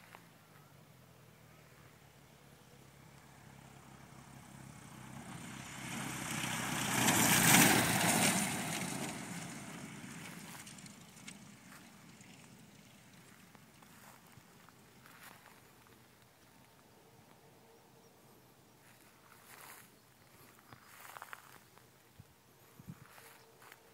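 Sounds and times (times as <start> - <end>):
propeller plane engine: 3.0 - 14.9.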